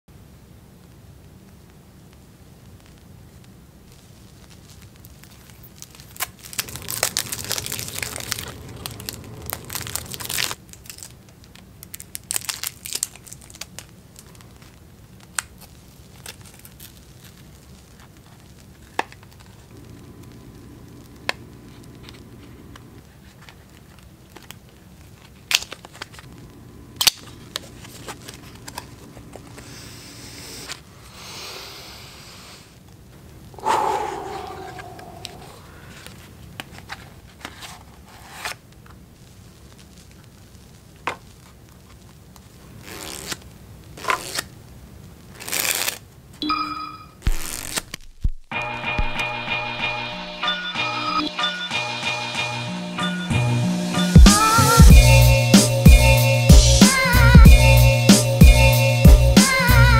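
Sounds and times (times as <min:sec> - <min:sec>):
cellophane wrapping crinkling: 0:03.9 - 0:30.9, 0:45.2 - 0:46.1, 0:47.2 - 0:48.5
paper box tearing: 0:06.0 - 0:11.1, 0:37.4 - 0:38.6, 0:42.8 - 0:43.4, 0:44.0 - 0:44.5, 0:45.4 - 0:46.0, 0:47.2 - 0:48.3.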